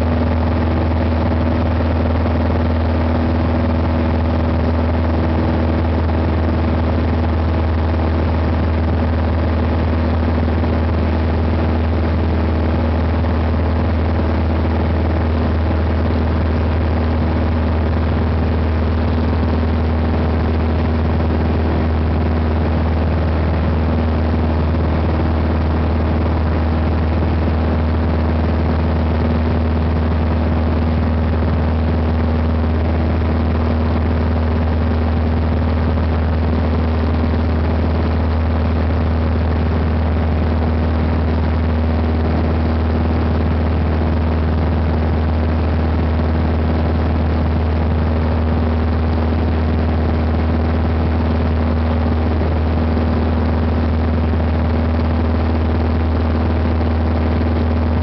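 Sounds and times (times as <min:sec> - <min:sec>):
propeller plane engine droning: 0:00.0 - 0:58.0.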